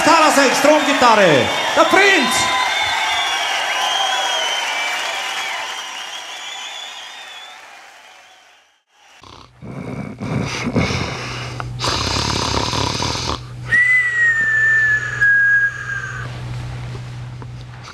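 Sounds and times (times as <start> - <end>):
cartoon snoring with whistle: 9.2 - 16.3.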